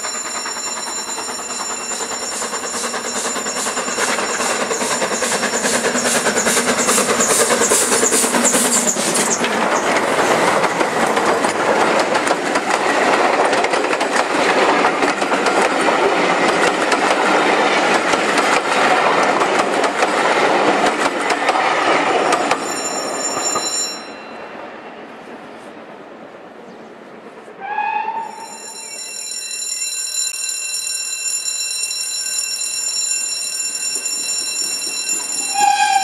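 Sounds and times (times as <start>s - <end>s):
steam locomotive exhaust beats: 0.0s - 23.4s, 32.7s - 36.0s
train wheels clacking over rail joints: 0.0s - 23.8s
high squeal: 27.6s - 29.9s, 35.3s - 36.0s.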